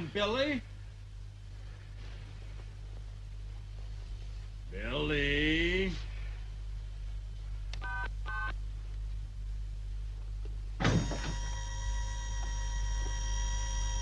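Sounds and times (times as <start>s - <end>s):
low hum: 0.0s - 14.0s
door mechanism whoosh and hum: 10.8s - 14.0s.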